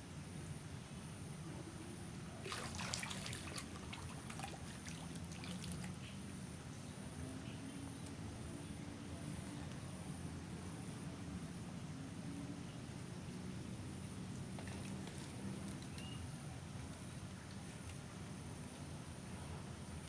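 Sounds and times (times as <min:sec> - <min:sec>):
water dripping: 0:02.4 - 0:06.1
fish splashing in water: 0:02.4 - 0:06.2.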